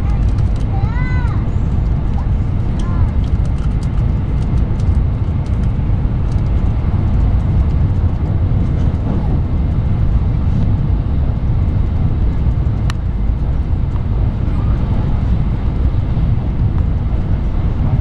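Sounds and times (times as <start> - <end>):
train wheels rumbling on rail: 0.0 - 18.0.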